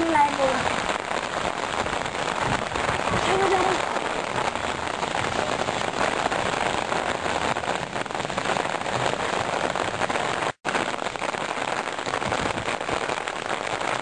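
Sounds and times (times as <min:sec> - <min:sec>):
steady rain falling: 0:00.0 - 0:14.0.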